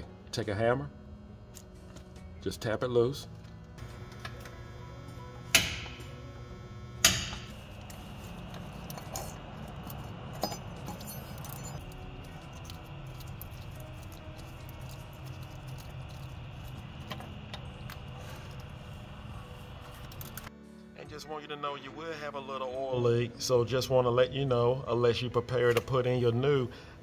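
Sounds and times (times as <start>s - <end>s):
small metal clicks and clinks: 8.9s - 12.0s.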